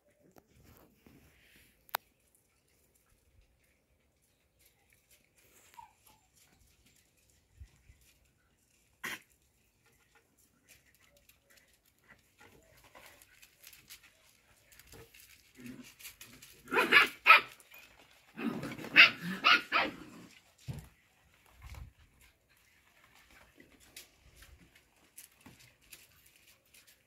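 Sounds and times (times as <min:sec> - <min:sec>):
puppies barking: 0:16.7 - 0:17.6, 0:18.5 - 0:20.0.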